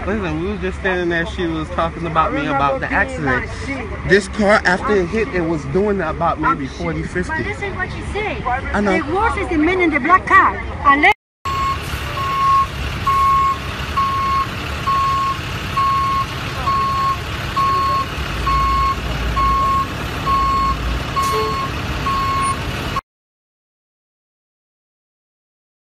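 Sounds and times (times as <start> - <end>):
truck engine rumble: 0.0 - 23.0
backup alarm beeping: 11.5 - 22.6.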